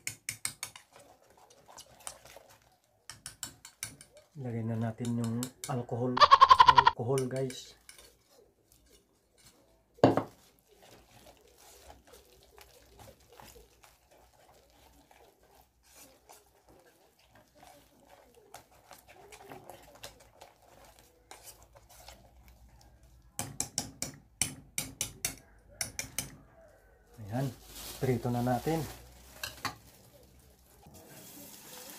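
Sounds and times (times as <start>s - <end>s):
whisk clinking against metal pot: 0.0s - 5.9s, 7.1s - 9.6s
whisk scraping in batter: 0.4s - 5.8s, 7.1s - 23.2s.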